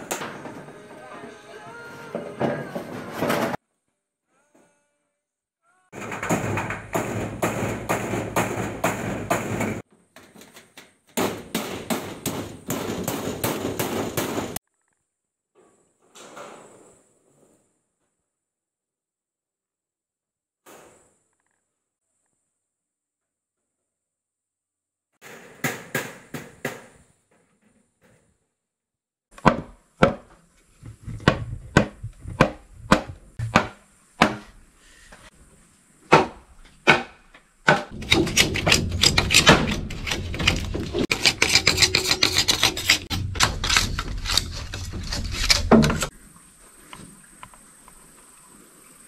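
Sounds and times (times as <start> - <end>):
fast scraping and knocking: 30.7 - 33.7, 37.9 - 46.1.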